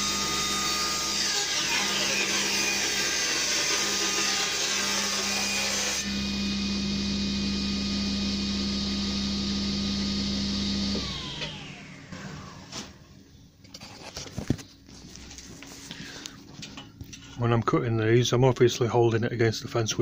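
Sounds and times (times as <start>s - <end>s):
table saw humming: 0.0s - 13.0s
table saw cutting plywood: 0.0s - 13.1s.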